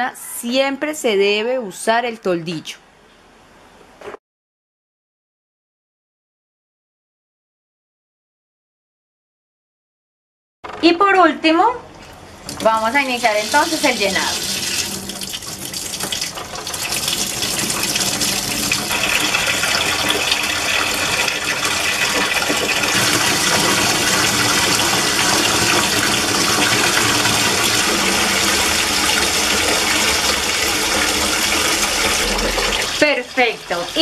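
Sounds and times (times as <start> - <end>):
water pouring into concrete tank: 12.5 - 34.0.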